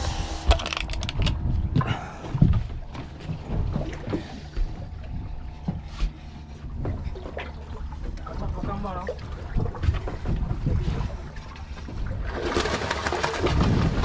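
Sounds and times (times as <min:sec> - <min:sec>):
wind: 0:00.0 - 0:14.0
water against hull: 0:00.4 - 0:14.0
knocks and thumps on boat: 0:01.3 - 0:14.0.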